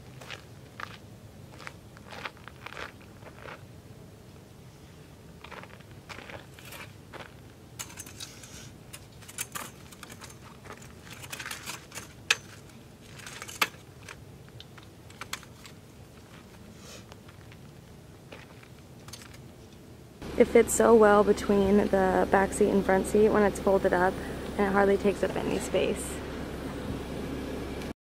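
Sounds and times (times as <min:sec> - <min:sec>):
mesh fabric rustling: 0:05.4 - 0:19.6
metal frame clicking and rattling: 0:07.8 - 0:16.5, 0:18.5 - 0:19.4.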